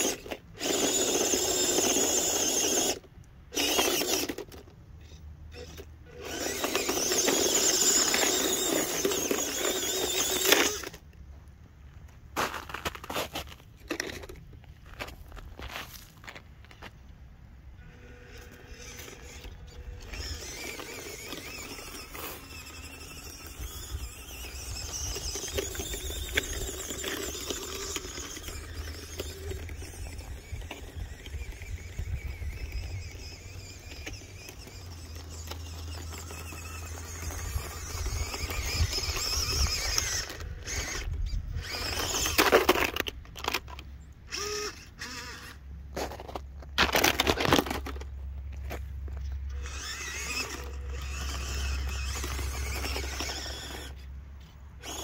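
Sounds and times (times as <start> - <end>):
small electric motor whining: 0.0 - 11.1, 17.8 - 48.0, 48.6 - 55.0.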